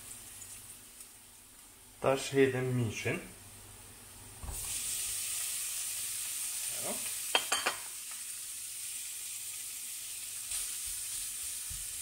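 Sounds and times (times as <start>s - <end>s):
meat and onion sizzling in pan: 0.0s - 2.5s, 3.4s - 12.0s.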